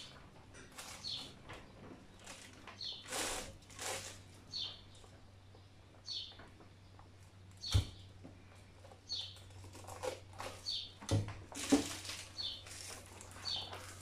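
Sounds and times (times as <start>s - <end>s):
bird chirping: 0.0s - 1.4s, 2.1s - 3.2s, 4.4s - 8.2s, 9.0s - 11.0s, 12.2s - 14.0s
plastic crinkling: 0.0s - 4.7s, 9.3s - 14.0s.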